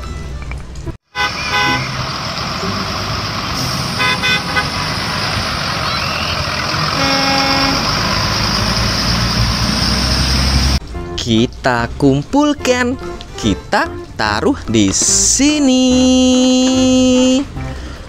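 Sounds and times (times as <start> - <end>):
buses driving on wet street: 0.0 - 18.0
bus horn toots: 1.1 - 10.8
low long horn honk: 1.1 - 10.8.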